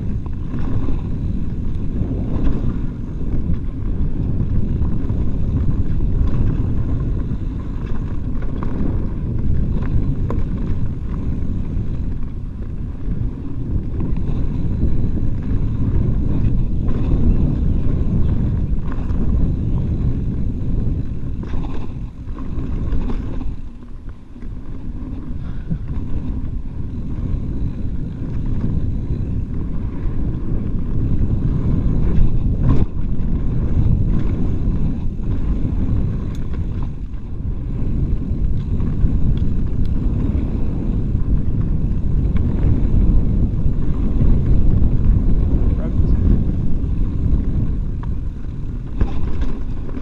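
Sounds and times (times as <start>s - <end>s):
bike knocks and rattles: 0.0s - 50.0s
wind rumble on microphone: 0.0s - 50.0s
tyres rolling over dirt: 41.1s - 50.0s.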